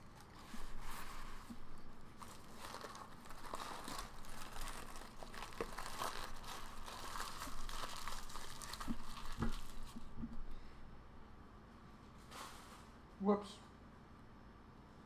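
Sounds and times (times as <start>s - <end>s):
paper wrapper crinkling: 0.0s - 10.2s.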